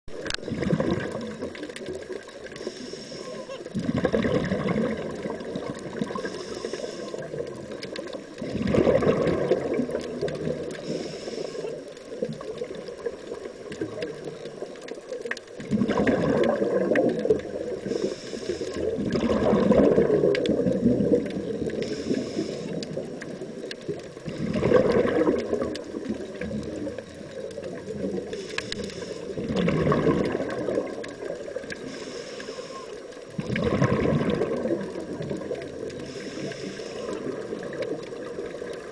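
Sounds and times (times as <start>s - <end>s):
gurgling exhaust bubbles: 0.3s - 2.1s, 3.8s - 6.4s, 8.4s - 10.7s, 15.6s - 17.9s, 18.8s - 21.8s, 22.8s - 28.4s, 29.2s - 31.7s, 33.2s - 36.0s
regulator hiss on inhale: 2.5s - 3.8s, 6.0s - 8.5s, 10.6s - 12.6s, 17.6s - 19.1s, 21.6s - 23.4s, 28.1s - 29.5s, 31.2s - 33.4s, 35.4s - 37.8s.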